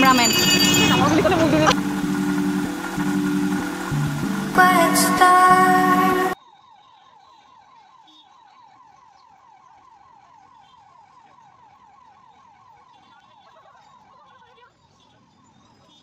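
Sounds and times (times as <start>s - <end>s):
warbling electronic siren tone: 0.0s - 7.0s
loud background music: 0.4s - 6.4s.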